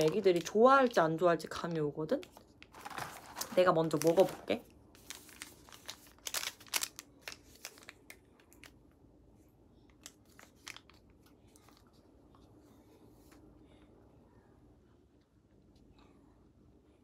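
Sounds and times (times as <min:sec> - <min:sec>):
plastic packet crinkling: 0:00.0 - 0:08.8, 0:10.0 - 0:11.6
packet tearing open: 0:02.6 - 0:08.8.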